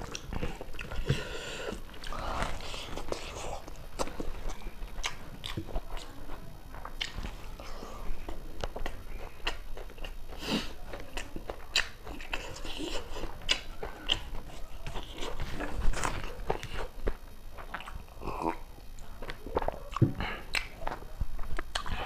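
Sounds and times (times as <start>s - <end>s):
close chewing with lip smacks: 0.0s - 22.0s.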